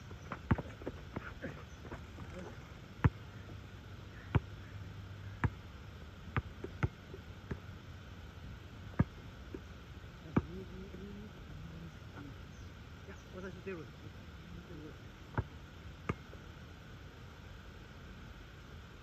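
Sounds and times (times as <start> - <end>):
basketball bouncing on asphalt: 0.0 - 2.0, 4.3 - 4.6, 5.3 - 5.6, 6.3 - 7.7, 8.9 - 9.6.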